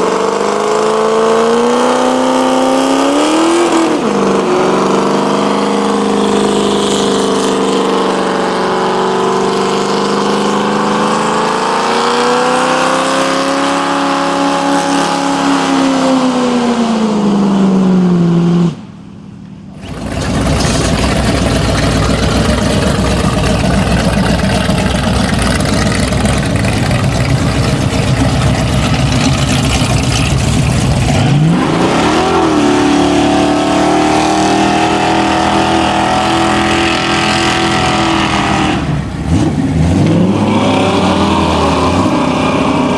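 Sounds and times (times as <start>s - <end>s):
car engine revving hard: 0.0s - 18.8s, 19.8s - 42.9s.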